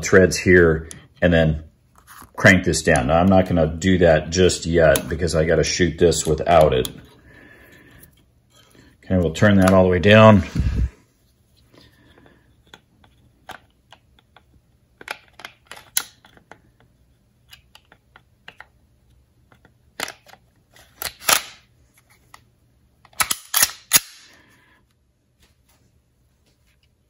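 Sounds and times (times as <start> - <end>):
pistol slide clicks and scrapes: 20.0 - 21.6, 23.1 - 24.3.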